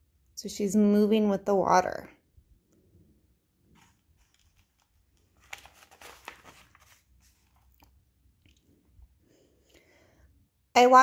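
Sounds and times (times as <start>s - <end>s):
paper page rustling: 3.7s - 7.9s.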